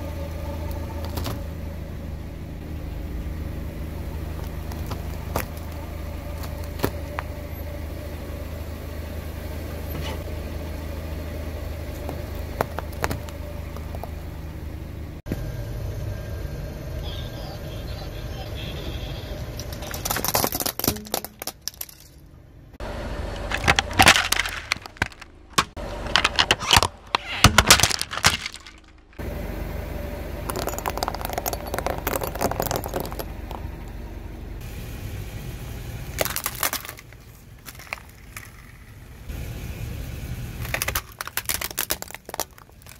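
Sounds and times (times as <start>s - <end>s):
car tyre rolling rumble: 0.0s - 15.6s, 19.0s - 42.9s
plastic toys cracking under tyre: 12.0s - 14.2s, 19.6s - 22.1s, 23.4s - 29.2s, 30.5s - 33.6s, 36.1s - 39.0s, 40.6s - 42.9s.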